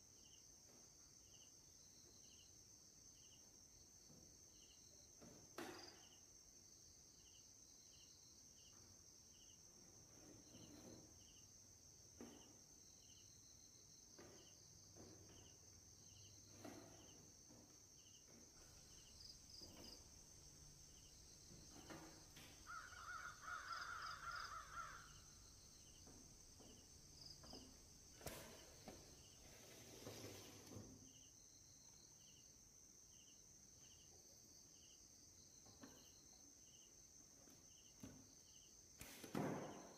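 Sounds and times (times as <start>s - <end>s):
insect chirps: 0.0s - 39.9s
harsh bird calls: 22.6s - 25.4s.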